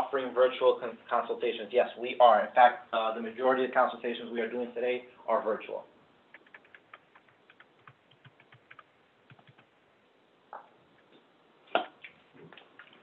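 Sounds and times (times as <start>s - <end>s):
faint keyboard typing: 6.2s - 9.8s, 12.1s - 13.0s.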